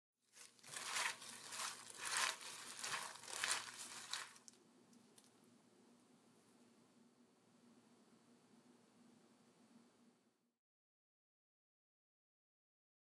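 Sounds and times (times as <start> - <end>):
lettuce rustling and crunching: 0.3 - 4.6.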